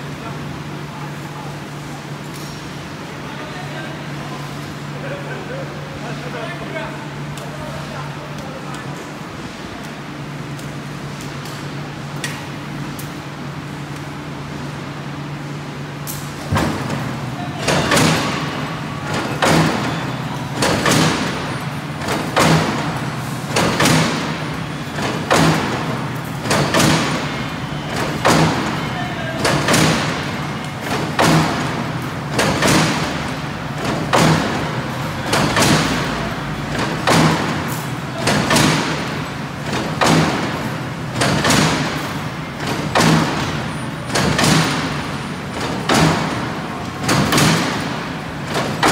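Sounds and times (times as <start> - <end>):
heavy machine clank: 16.1 - 48.9.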